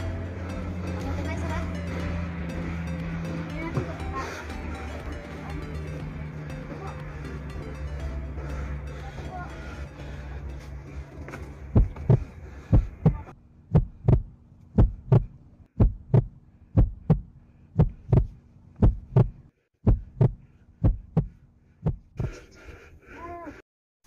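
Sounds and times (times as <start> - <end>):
low steady hum: 0.0 - 19.4
heartbeat double thump: 11.8 - 22.3.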